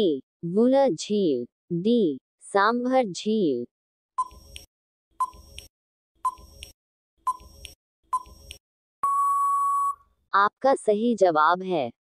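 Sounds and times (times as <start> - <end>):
short timer beeps: 7.3 - 10.0
long steady beep: 9.0 - 10.0.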